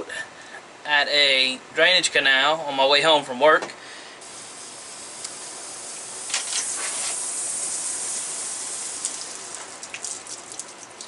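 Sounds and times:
water hissing from hose spigot: 4.2s - 11.0s.

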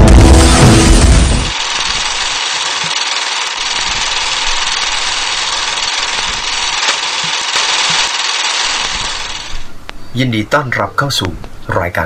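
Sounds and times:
film projector whirring: 0.0s - 10.0s.

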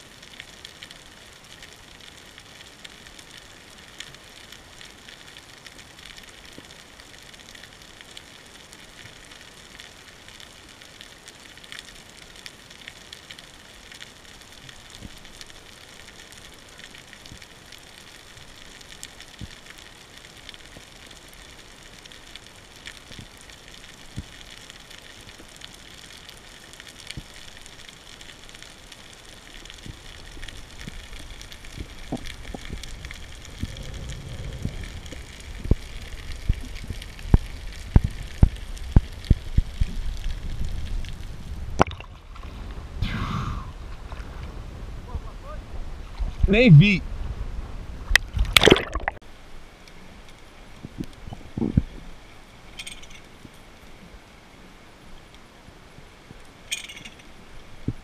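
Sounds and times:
underwater crackling hiss: 0.0s - 43.8s
low rumble of moving water: 0.0s - 58.0s.

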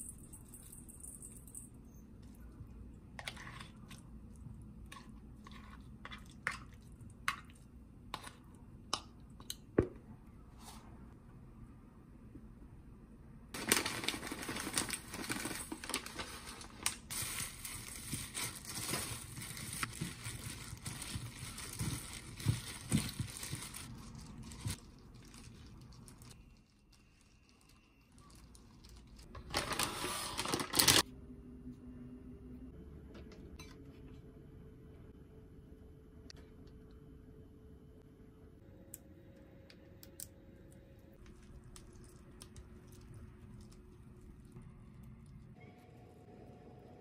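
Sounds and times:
plastic gloves crinkling: 13.6s - 31.0s.

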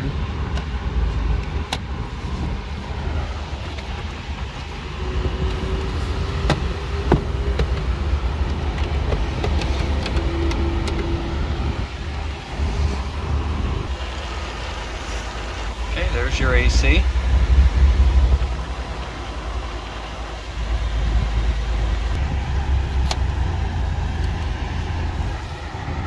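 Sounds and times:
car engine idling: 0.0s - 26.0s
sun visor clicks: 5.4s - 11.2s, 22.9s - 23.4s.

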